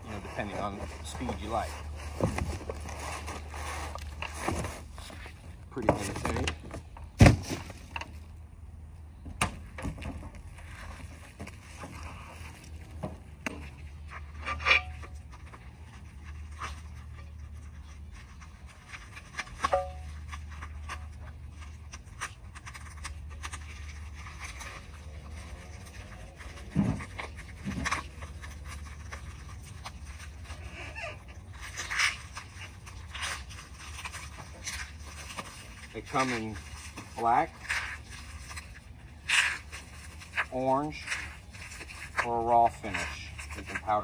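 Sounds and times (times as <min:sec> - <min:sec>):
light knocks and scrapes: 0:09.2 - 0:44.0.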